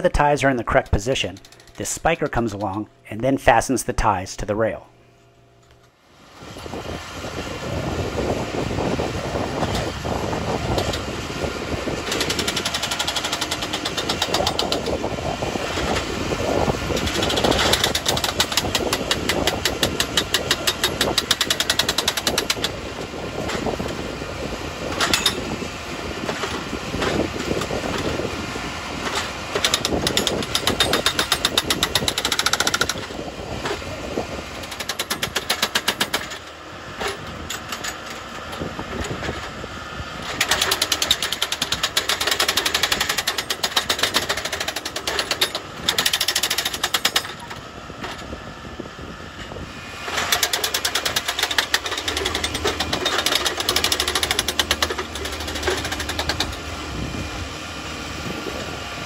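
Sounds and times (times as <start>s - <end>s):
rapid mechanical hammering: 0.5s - 3.0s, 11.8s - 23.8s, 29.1s - 33.2s, 34.5s - 36.5s, 40.3s - 47.6s, 50.0s - 56.8s
machine engine running: 0.6s - 3.4s, 5.0s - 59.0s.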